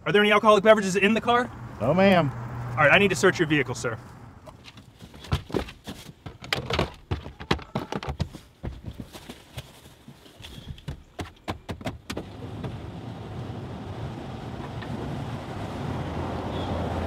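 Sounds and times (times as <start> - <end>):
knocks and rustling in car cabin: 4.5 - 9.7, 10.5 - 12.8.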